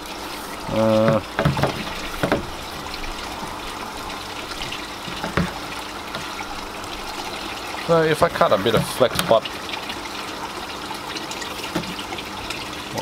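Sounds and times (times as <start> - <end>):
water running and trickling: 0.0 - 13.0
plastic tubing knocking: 0.9 - 2.8, 4.6 - 6.3, 11.7 - 12.0.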